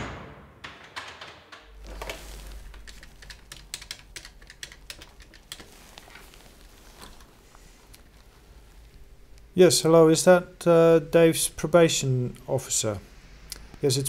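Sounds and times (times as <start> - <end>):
steel door slam echo: 0.0 - 1.8
keyboard typing clicks: 2.8 - 5.7.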